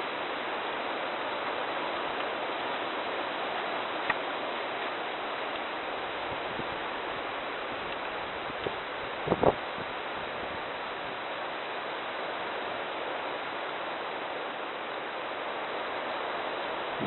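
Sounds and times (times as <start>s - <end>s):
wind noise hiss: 0.0s - 17.0s.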